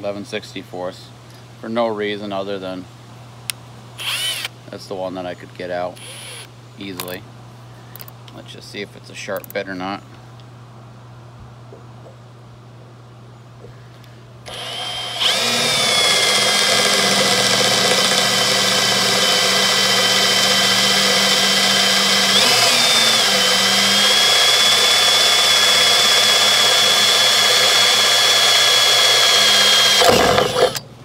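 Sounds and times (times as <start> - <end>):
cordless drill whining: 4.0 - 4.5, 6.0 - 6.5, 14.5 - 30.8.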